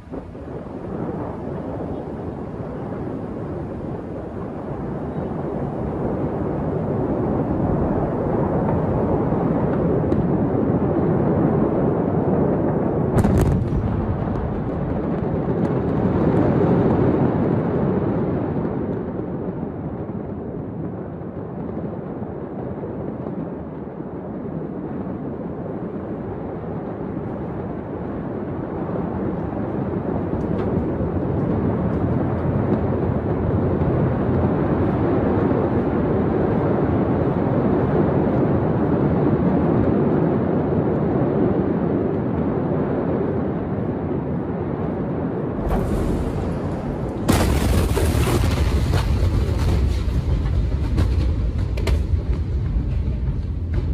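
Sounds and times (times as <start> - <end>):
distant explosion rumble: 0.0 - 53.9
sharp bang: 45.6 - 50.1.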